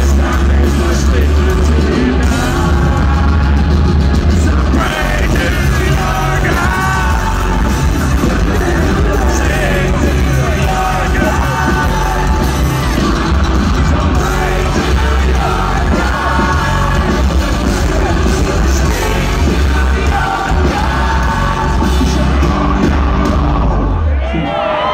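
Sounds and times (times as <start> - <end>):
crowd yelling: 0.0 - 24.9
rock band playing live: 0.0 - 24.9.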